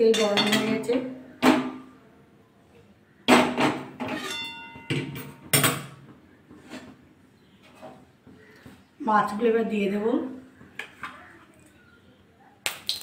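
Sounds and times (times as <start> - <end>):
metal cookware clanking: 0.0 - 1.9, 3.3 - 6.1.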